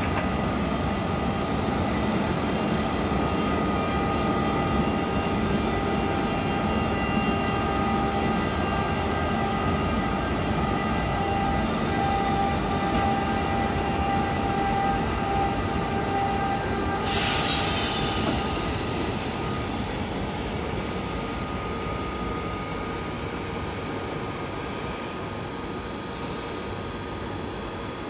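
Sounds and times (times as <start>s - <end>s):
train wheels rumbling: 1.3s - 20.7s
loud hiss: 17.0s - 18.9s.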